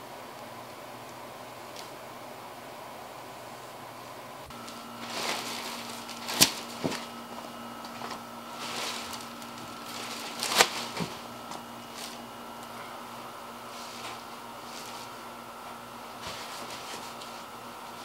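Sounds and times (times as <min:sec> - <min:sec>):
faint steady hum: 0:00.0 - 0:18.0
rustling on plastic sheeting: 0:04.5 - 0:18.0.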